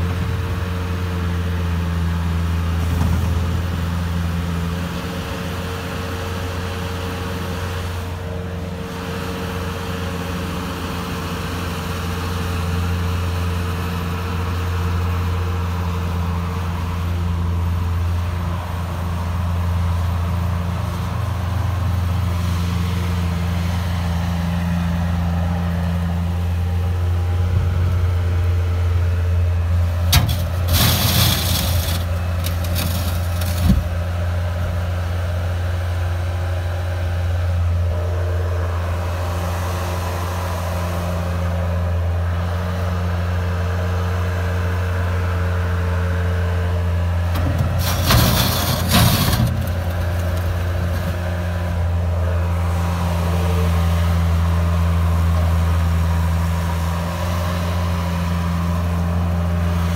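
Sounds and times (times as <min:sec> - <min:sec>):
diesel engine running: 0:00.0 - 0:59.9
scraping and clanking: 0:30.1 - 0:34.0, 0:47.3 - 0:51.6.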